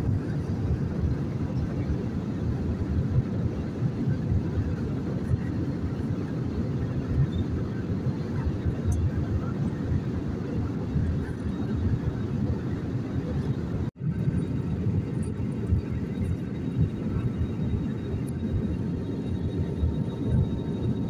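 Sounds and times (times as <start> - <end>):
airplane cabin rumble: 0.0 - 21.0.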